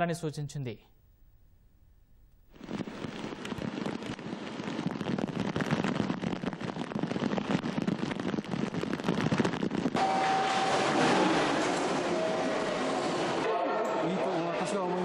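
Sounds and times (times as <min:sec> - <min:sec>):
heavy rain: 0:02.6 - 0:14.4
flooded river rushing: 0:10.0 - 0:13.6.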